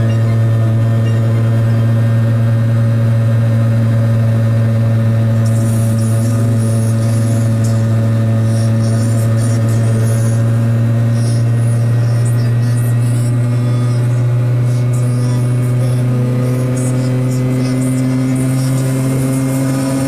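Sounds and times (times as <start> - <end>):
small two-stroke engine running: 0.0 - 20.0.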